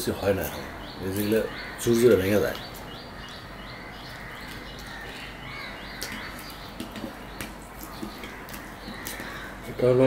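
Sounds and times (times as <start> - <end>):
small bird chirping: 0.0 - 9.9
person chewing fried bread: 4.1 - 9.7.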